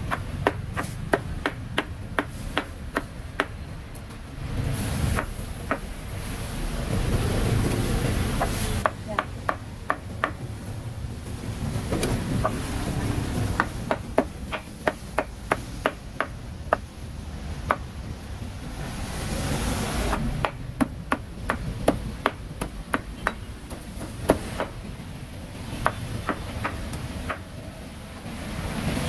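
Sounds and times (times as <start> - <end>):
cleaver chopping meat on board: 0.0 - 3.6, 5.1 - 5.9, 8.4 - 10.4, 13.5 - 16.9, 17.6 - 17.9, 20.1 - 24.8, 25.7 - 27.5.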